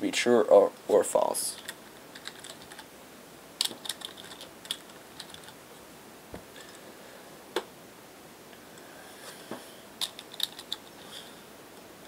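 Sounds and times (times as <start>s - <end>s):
computer keyboard typing: 1.6s - 2.9s, 3.6s - 5.6s, 10.0s - 10.9s.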